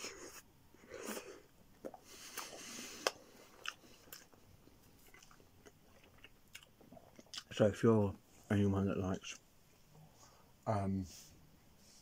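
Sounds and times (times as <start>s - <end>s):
person chewing food: 0.0s - 7.5s.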